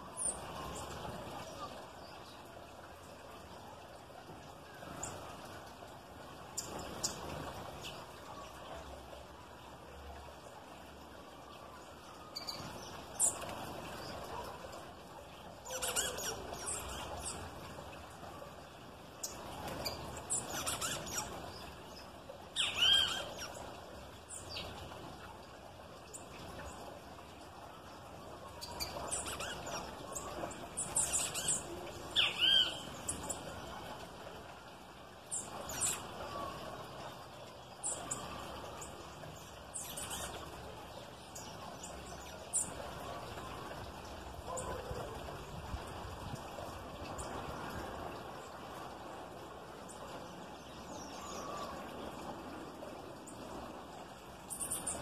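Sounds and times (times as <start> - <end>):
small birds chirping: 19.2 - 24.8, 28.5 - 33.8, 37.1 - 42.8.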